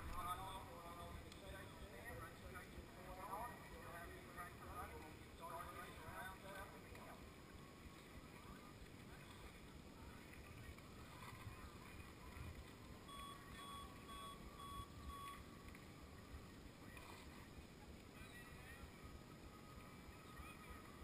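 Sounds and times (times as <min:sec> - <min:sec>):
short beeps: 0:13.1 - 0:15.4.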